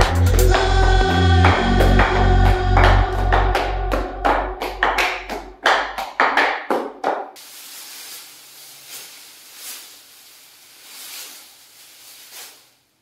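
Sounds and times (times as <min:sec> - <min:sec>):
bass: 0:00.0 - 0:06.0
sharp clap-like percussive hits: 0:00.0 - 0:07.4
soft rustles: 0:07.4 - 0:12.9
faint room hiss: 0:07.4 - 0:13.0.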